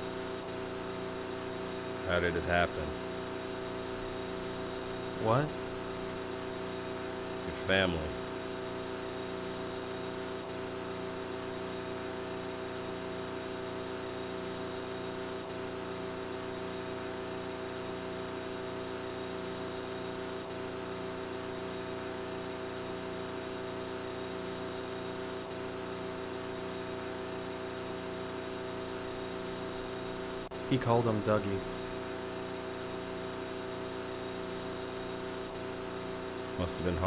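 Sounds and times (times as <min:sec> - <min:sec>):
steady buzzing tones: 0:00.0 - 0:13.5, 0:24.9 - 0:37.0
mains hum with hiss: 0:00.0 - 0:37.0.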